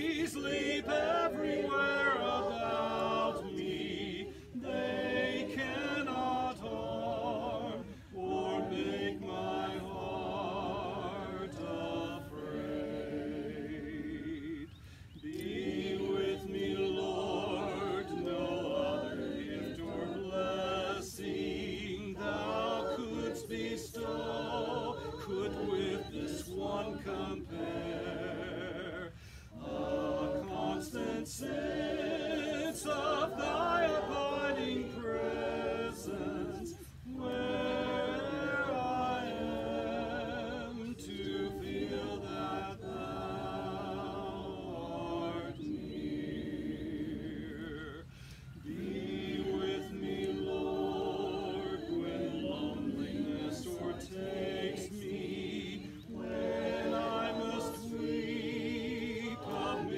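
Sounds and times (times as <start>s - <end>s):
congregation singing a hymn: 0.0s - 59.9s.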